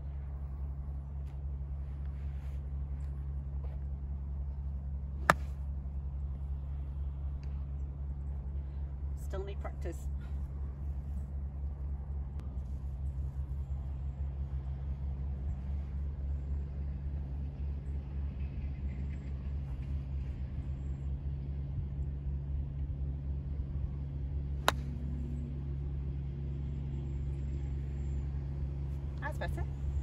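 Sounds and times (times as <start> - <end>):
steady low rumble: 0.0 - 30.0
golf club striking ball: 5.2 - 5.6, 24.6 - 25.2.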